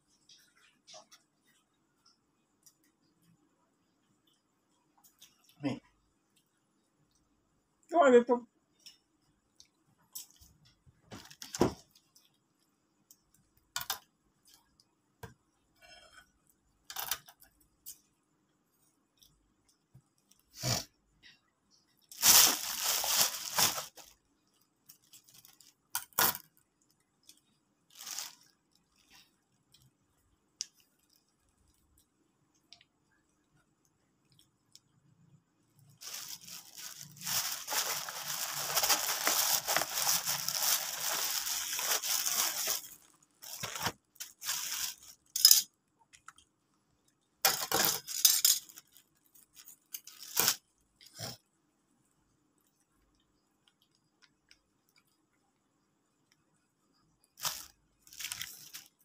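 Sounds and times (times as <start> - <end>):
crunching while eating: 35.8 - 45.3, 57.4 - 59.0.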